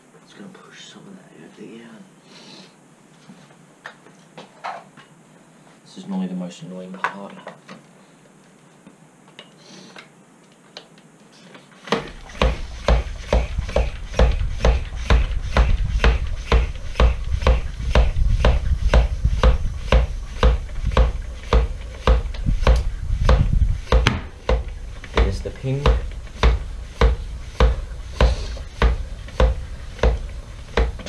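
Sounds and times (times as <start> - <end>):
floor pump strokes: 11.3 - 31.0.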